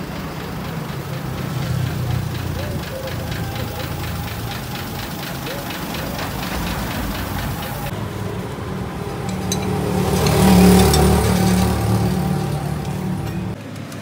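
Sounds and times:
truck engine running: 0.0s - 14.0s.

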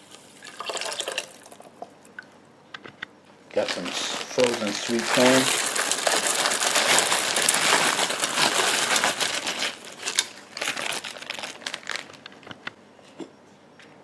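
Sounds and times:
plastic bag crinkling: 3.5s - 12.6s.

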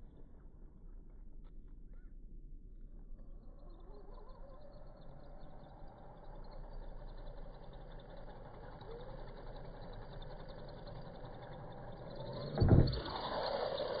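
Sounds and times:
rc truck motors whining: 3.0s - 14.0s
heavy thump: 12.5s - 13.2s.

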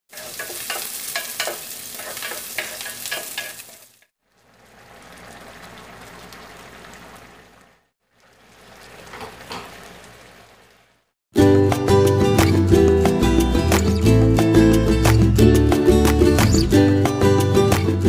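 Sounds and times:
onions sizzling in oil: 0.1s - 7.4s
pot simmering: 0.1s - 11.1s.

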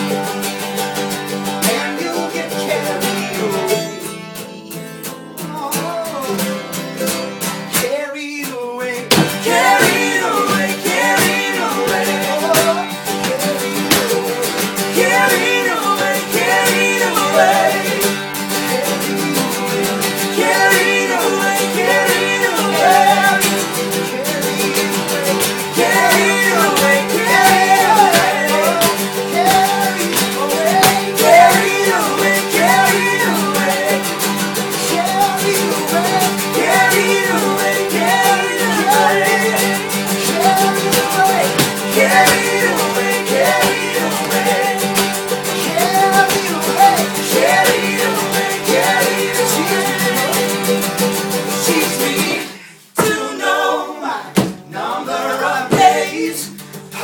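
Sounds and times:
acoustic guitars strummed: 0.0s - 57.0s
voices singing: 1.5s - 4.8s, 7.9s - 57.0s
mandolin: 9.1s - 52.5s.

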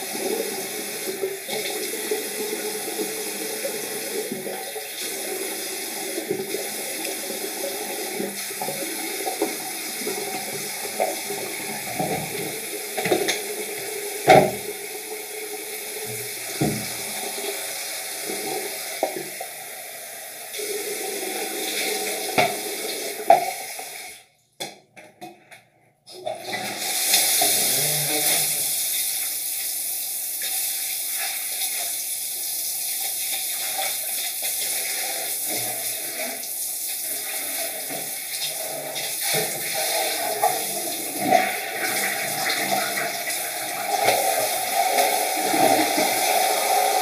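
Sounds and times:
tap running into sink: 6.0s - 15.0s, 16.0s - 19.5s, 21.7s - 24.0s
water splashes and knocks: 6.1s - 14.8s, 16.0s - 17.3s, 22.3s - 22.6s.

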